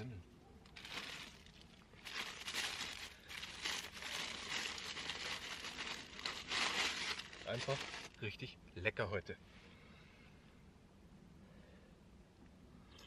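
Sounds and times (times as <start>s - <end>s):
paper bag crinkling: 0.8s - 8.2s.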